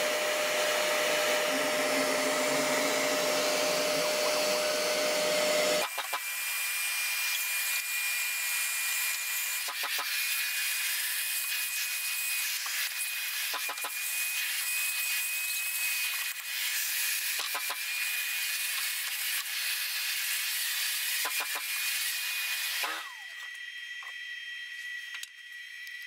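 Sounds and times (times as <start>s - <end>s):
thin high whine: 0.0s - 5.8s
router spindle whining: 0.0s - 10.9s.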